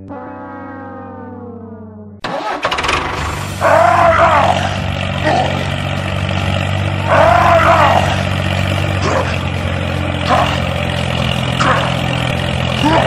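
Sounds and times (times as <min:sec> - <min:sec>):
rising and falling wail: 0:02.2 - 0:13.0
tractor engine cranking and chugging: 0:02.2 - 0:13.0.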